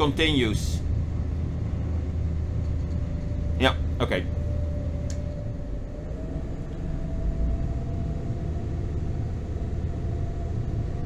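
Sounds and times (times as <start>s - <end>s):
diesel engine rumbling: 0.0s - 11.0s
faint steady whine: 0.0s - 11.0s.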